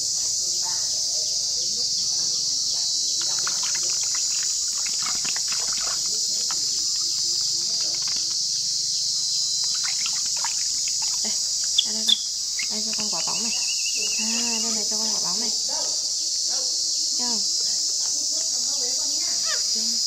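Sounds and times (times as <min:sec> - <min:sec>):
high-pitched insect chorus: 0:00.0 - 0:20.0
water splashing in plastic basin: 0:03.1 - 0:14.4.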